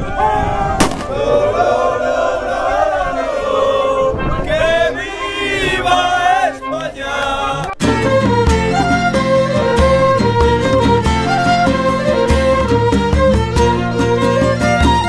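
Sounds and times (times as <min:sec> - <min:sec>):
men singing a chant: 0:01.2 - 0:07.7.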